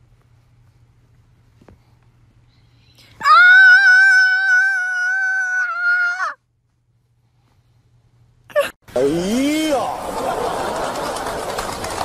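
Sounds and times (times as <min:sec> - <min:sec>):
cat yowling: 0:03.2 - 0:06.4.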